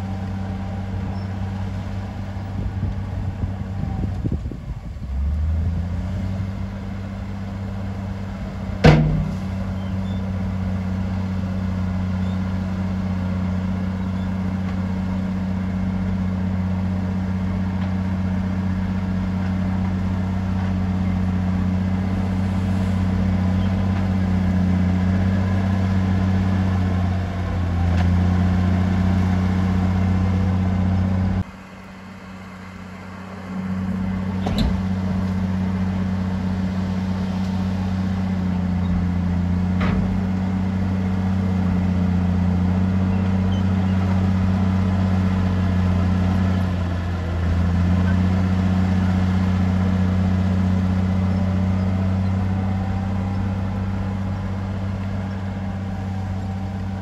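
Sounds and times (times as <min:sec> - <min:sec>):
bulldozer diesel engine running: 0:00.0 - 0:57.0
sharp knocks: 0:08.8 - 0:09.6.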